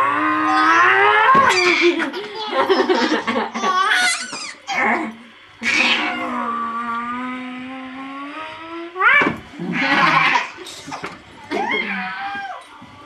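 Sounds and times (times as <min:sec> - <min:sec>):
playful squeals: 0:00.0 - 0:02.0.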